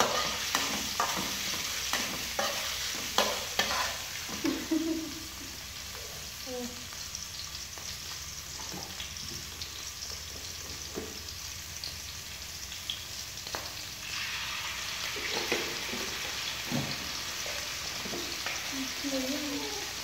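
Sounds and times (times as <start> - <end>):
food sizzling in a wok: 0.0 - 20.0
liquid poured into hot pan: 14.0 - 17.9.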